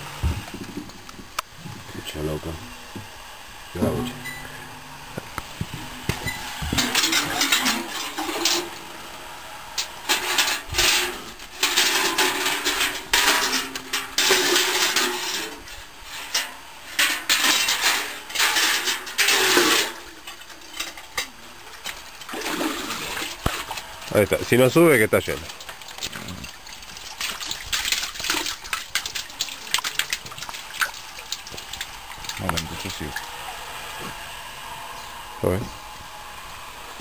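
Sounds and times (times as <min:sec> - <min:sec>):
bucket splashing in well water: 0:03.8 - 0:08.8, 0:16.2 - 0:33.4.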